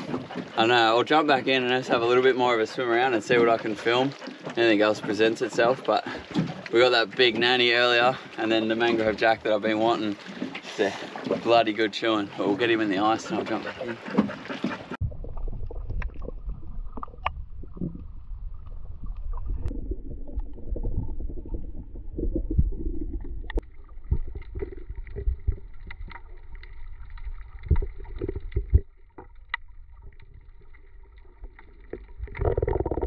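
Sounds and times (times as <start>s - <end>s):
muffled underwater rumble: 14.8s - 33.0s.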